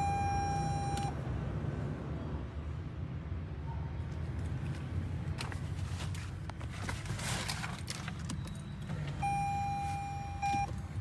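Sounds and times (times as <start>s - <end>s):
electronic car chime beep: 0.0s - 1.2s, 9.2s - 10.8s.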